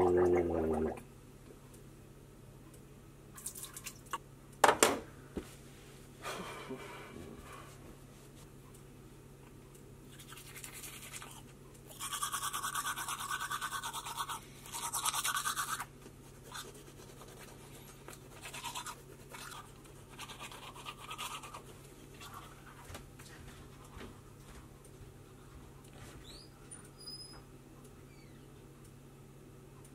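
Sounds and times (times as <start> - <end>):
toothbrush scrubbing teeth: 3.4 - 4.0, 10.1 - 22.9.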